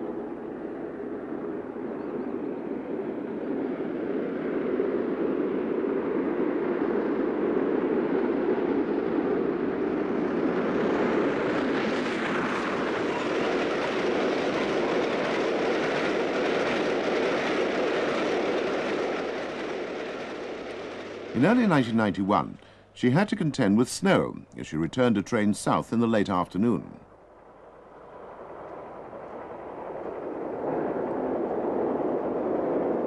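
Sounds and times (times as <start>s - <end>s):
wheels rushing on rail: 9.6s - 22.4s.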